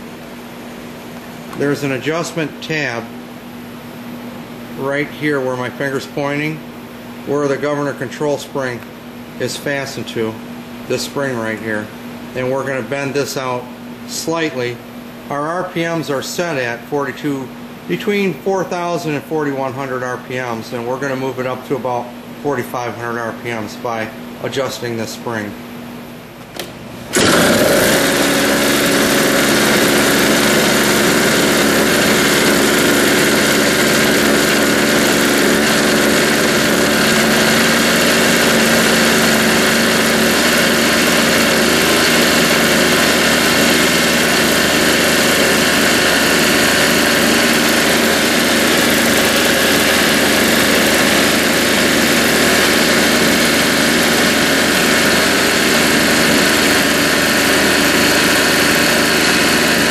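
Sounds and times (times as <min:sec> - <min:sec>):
snowblower engine running: 0:26.6 - 0:59.9.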